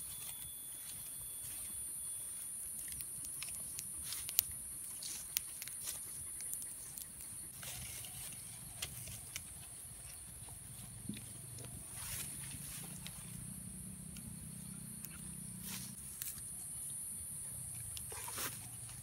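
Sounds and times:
clicks and taps of skewering: 0:02.8 - 0:07.5.

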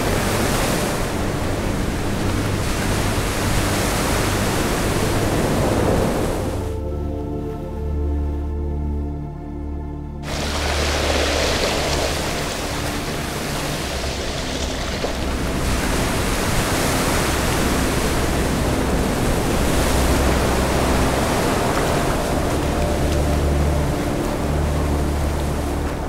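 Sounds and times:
low held music notes: 0:00.0 - 0:26.0
loud rushing noise: 0:10.2 - 0:22.3.

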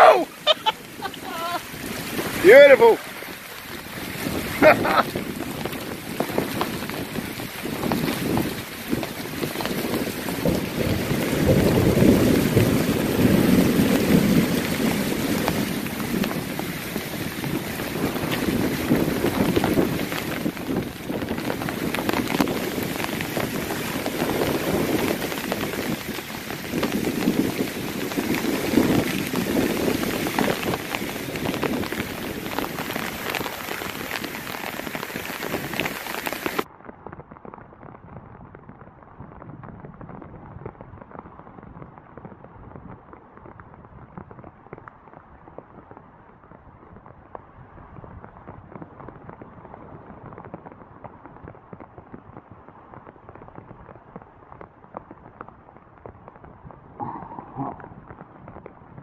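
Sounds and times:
low rumbles of thunder: 0:00.0 - 0:35.7, 0:56.8 - 0:58.7
heavy rain pouring: 0:00.0 - 0:36.8, 0:56.8 - 0:59.0.

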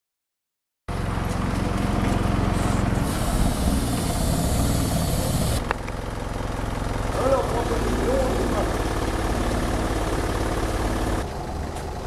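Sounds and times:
diesel engine humming: 0:00.9 - 0:12.0.

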